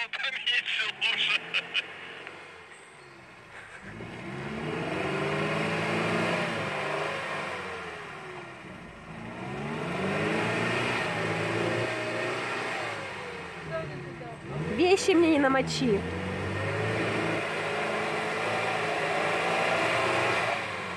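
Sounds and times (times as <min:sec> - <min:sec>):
off-road vehicle engine revving: 0:00.0 - 0:20.9.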